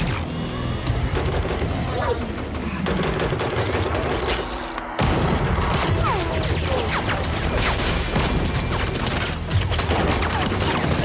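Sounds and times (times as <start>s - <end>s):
rapid gunfire: 1.0s - 4.2s, 5.0s - 11.0s.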